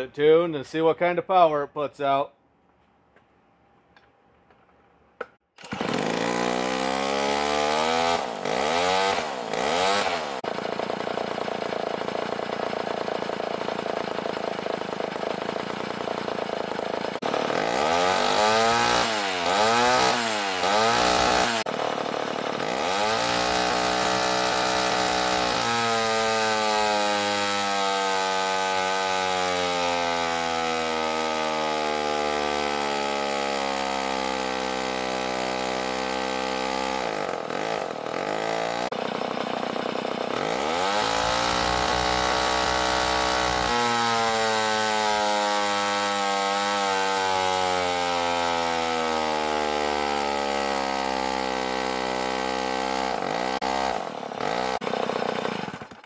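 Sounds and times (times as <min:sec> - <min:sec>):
chainsaw engine revving: 0:05.6 - 0:56.0.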